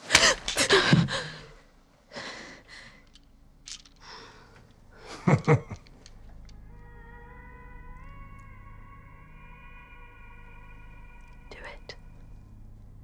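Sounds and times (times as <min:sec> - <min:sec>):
person breathing heavily: 0:00.6 - 0:03.2, 0:04.0 - 0:05.0.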